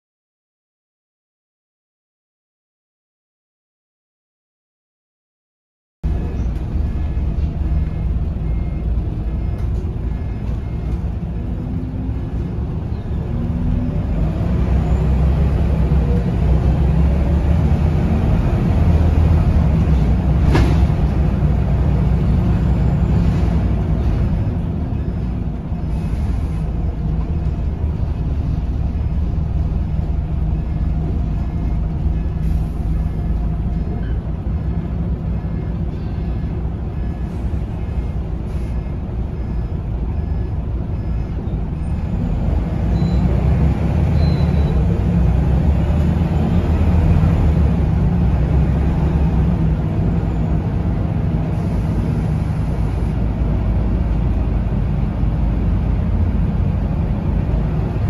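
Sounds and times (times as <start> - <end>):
bus diesel engine humming: 6.0 - 58.0.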